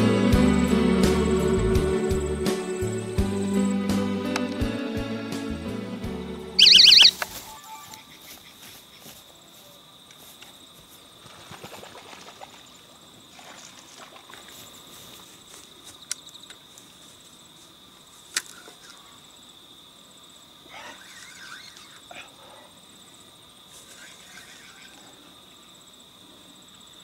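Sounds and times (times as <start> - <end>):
insects trilling: 6.6 - 11.3, 14.3 - 27.0.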